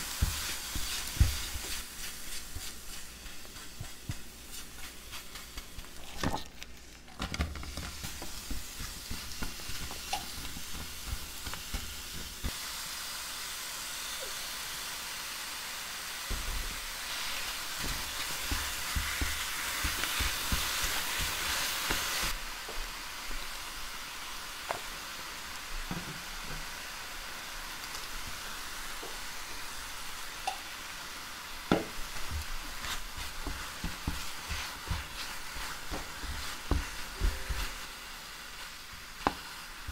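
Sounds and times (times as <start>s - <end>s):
stirring knocks and scrapes: 0.0s - 12.5s, 16.3s - 22.4s, 31.7s - 37.9s
apples sizzling in a frying pan: 0.0s - 39.9s.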